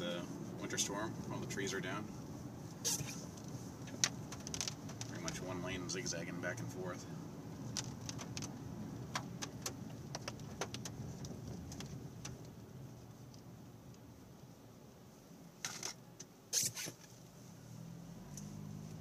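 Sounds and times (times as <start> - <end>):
rustling scrapes: 2.3 - 5.3, 15.7 - 17.6
tyre rumble on road: 2.8 - 5.8, 7.4 - 12.8.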